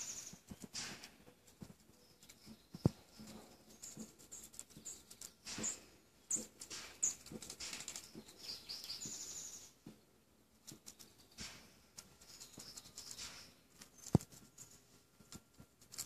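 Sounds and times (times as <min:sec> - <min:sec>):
high bird chirps: 0:00.0 - 0:00.6, 0:08.0 - 0:09.8, 0:12.2 - 0:14.2
rodent cracking seed husks: 0:02.2 - 0:09.0, 0:10.6 - 0:16.0.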